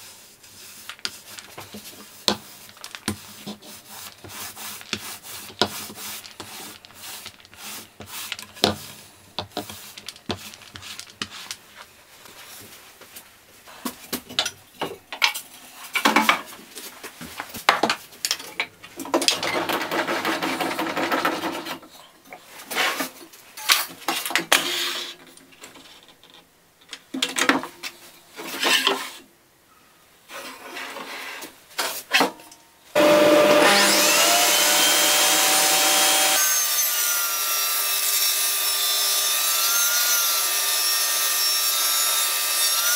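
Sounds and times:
paint roller rolling on wood: 0.0 - 13.3
wood knocking and scraping: 0.6 - 13.2
table saw motor running: 33.0 - 36.6.

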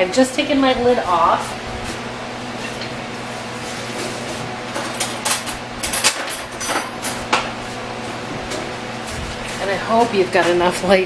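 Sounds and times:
steady low hum: 0.0 - 11.0
metal kitchenware clinking: 4.8 - 7.2.

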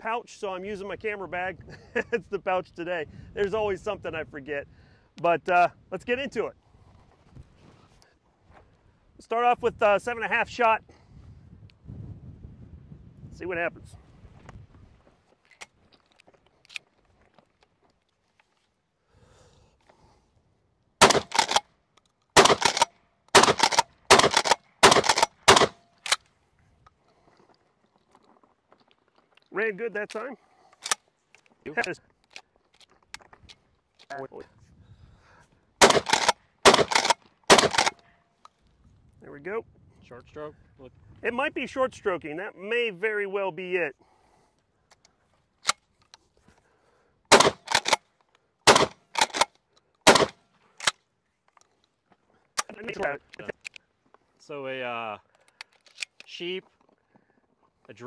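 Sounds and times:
shotgun pump racking: 21.0 - 21.6, 22.4 - 26.2, 35.8 - 38.0, 47.3 - 48.0, 48.7 - 51.7, 55.3 - 56.3
shotgun shots: 21.0 - 21.6, 22.4 - 26.2, 35.8 - 38.0, 47.3 - 48.0, 48.7 - 49.5, 50.1 - 50.4.

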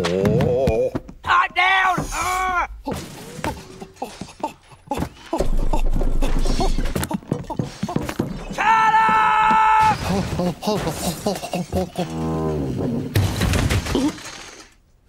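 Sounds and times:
cartoon knocks and clatters: 12.8 - 14.8.

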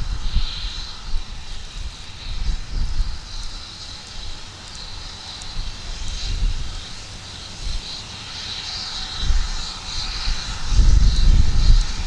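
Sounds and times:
wind buffeting microphone: 0.0 - 8.0, 8.6 - 12.0
steady high hiss: 0.0 - 12.0.

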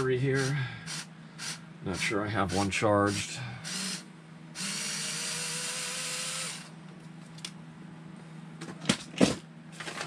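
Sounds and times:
power driver whirring: 0.0 - 6.8.

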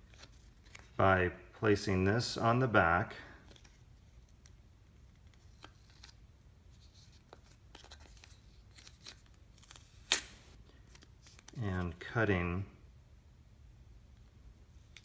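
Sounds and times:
tape backing peeling and crackling: 6.9 - 11.6.

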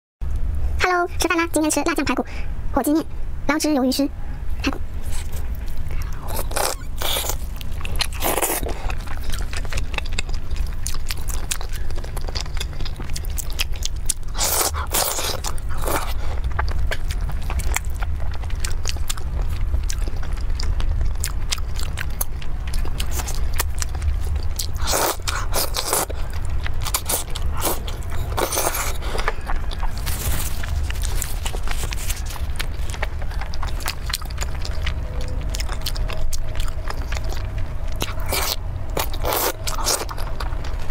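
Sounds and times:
steady low hum: 0.2 - 40.9
person biting and chewing: 5.0 - 40.8.

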